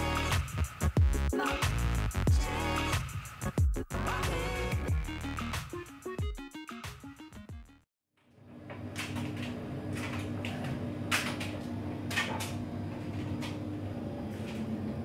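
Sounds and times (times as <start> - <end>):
washing machine motor hum: 8.3 - 15.0.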